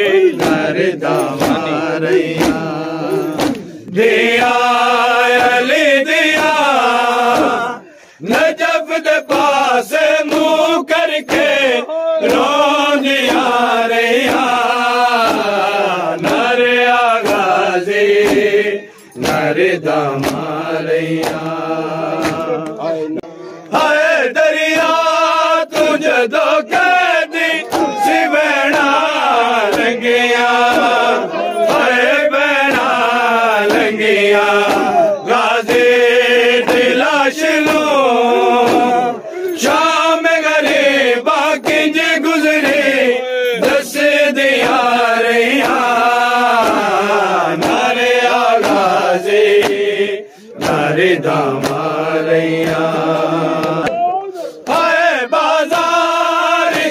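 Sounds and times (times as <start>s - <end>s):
men chanting in unison: 0.0s - 56.9s
hands striking chests: 0.3s - 3.8s, 18.2s - 18.6s, 20.2s - 20.6s, 22.2s - 22.8s.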